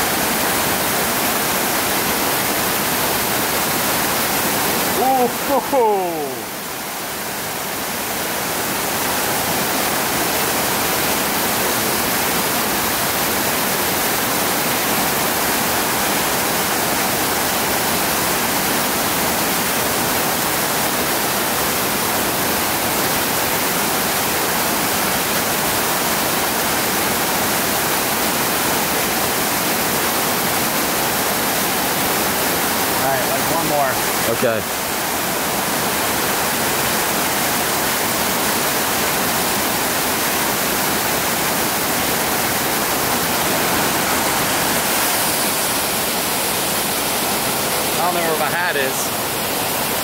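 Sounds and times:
waterfall rushing into pool: 0.0s - 50.0s.

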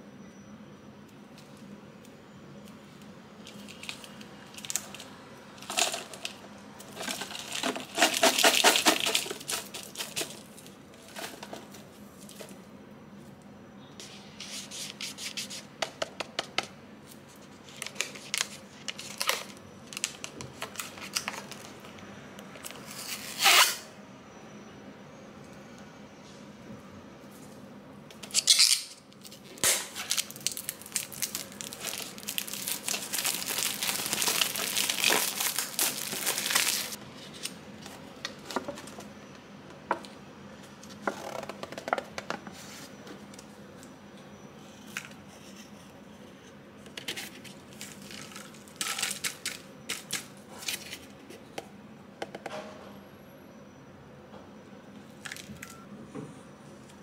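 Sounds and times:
plastic wrap crinkling and tearing: 3.4s - 12.4s, 17.7s - 21.9s, 28.3s - 37.5s, 47.4s - 51.0s.

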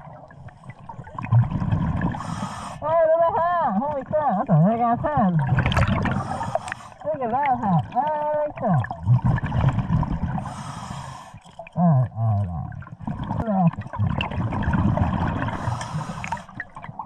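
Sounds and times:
bubbling exhaled air underwater: 0.0s - 2.7s, 4.0s - 17.0s
regulator inhale hiss: 2.2s - 2.8s, 6.2s - 7.0s, 10.4s - 11.4s, 15.6s - 16.6s.

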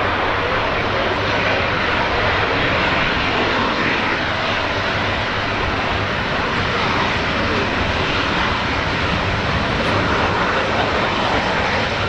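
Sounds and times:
jet engines running: 0.0s - 12.0s.

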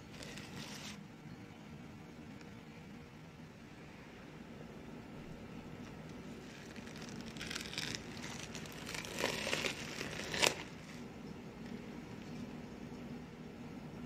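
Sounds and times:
cloth and mesh sieve crinkling: 5.8s - 12.6s.

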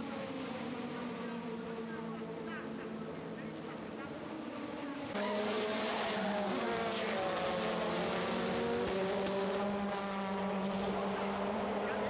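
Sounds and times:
race car engines at speed: 0.0s - 12.0s.

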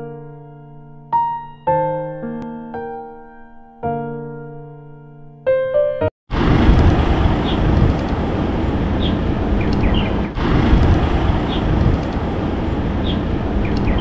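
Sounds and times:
bicycle road noise rumble: 6.3s - 14.0s
wind buffeting microphone: 6.3s - 14.0s.

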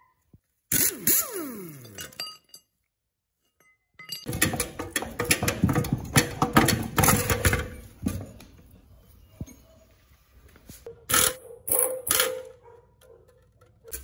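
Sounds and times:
metal knocks clanks and scrapes: 4.0s - 9.8s.

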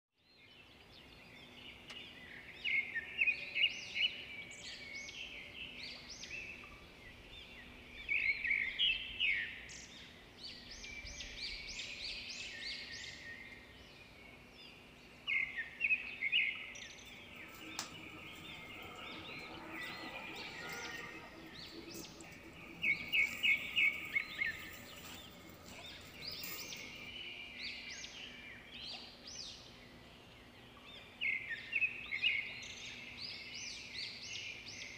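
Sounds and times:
birds chirping: 15.7s - 28.4s.

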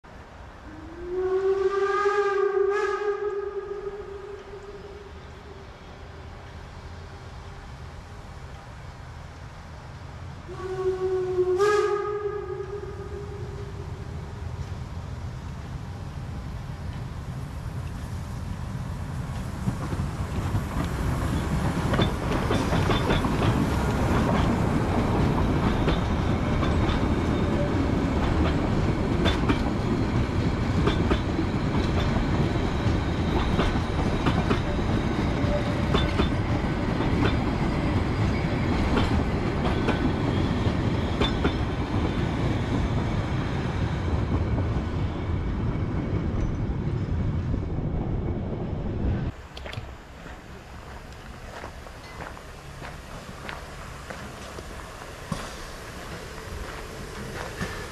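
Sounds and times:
steam train rumbling past: 0.1s - 57.9s
wheels clacking over rail joints: 19.2s - 43.3s.

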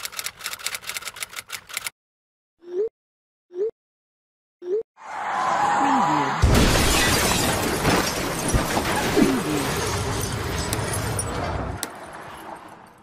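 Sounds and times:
shattering noisy wash: 6.4s - 11.2s.

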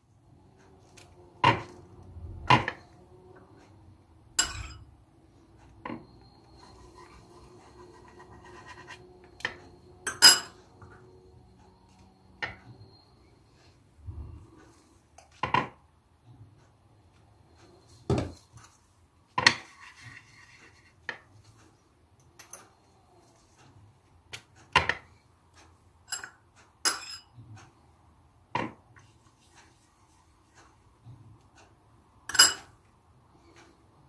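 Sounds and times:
teaspoon clinking on ceramic bowl: 4.4s - 4.8s, 10.1s - 10.6s, 26.9s - 27.3s, 32.3s - 32.7s.

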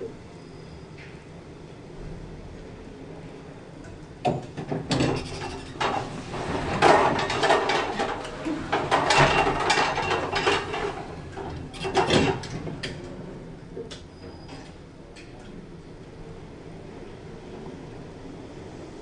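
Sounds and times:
lift doors clattering and knocking: 4.2s - 15.4s.

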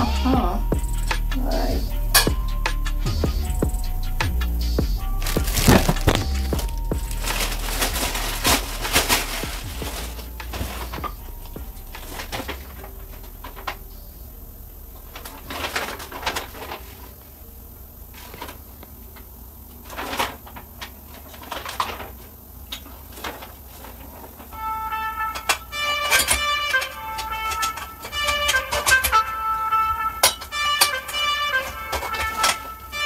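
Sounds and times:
plastic packaging crinkling: 5.2s - 13.9s.

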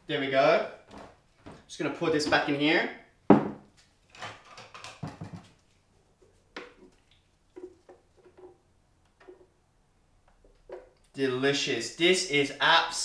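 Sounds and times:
wet plops of pouring yogurt: 6.5s - 8.6s.

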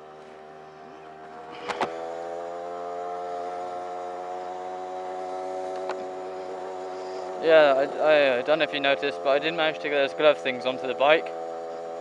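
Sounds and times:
motorbike engine buzzing: 0.0s - 12.0s
sharp clicks: 1.6s - 2.0s.

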